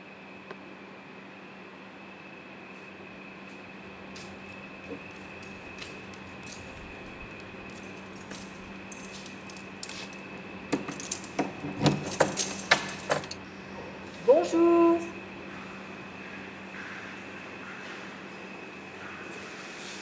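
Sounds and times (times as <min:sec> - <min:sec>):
steady hum: 0:00.0 - 0:20.0
keys jangling: 0:05.2 - 0:13.4.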